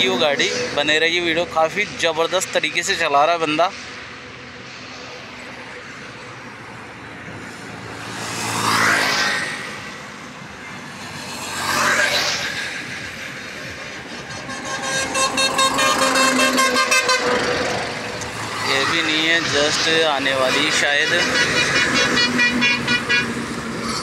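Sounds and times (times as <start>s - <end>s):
truck passing close: 0.0s - 24.0s
vehicles passing on highway: 0.0s - 24.0s
vehicle horn pulsing: 14.4s - 17.8s, 21.0s - 23.4s.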